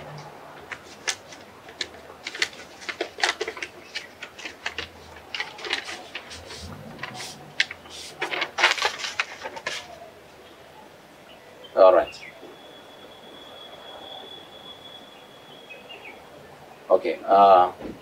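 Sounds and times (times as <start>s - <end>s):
paper rustling and crackling: 0.1s - 10.2s.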